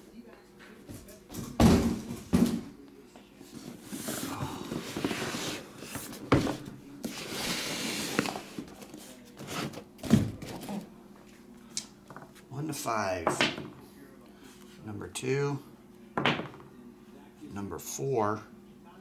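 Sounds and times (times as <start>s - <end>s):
cardboard rustling and sliding: 3.6s - 9.8s
boxes thudding on a table: 9.5s - 10.6s, 16.2s - 16.7s.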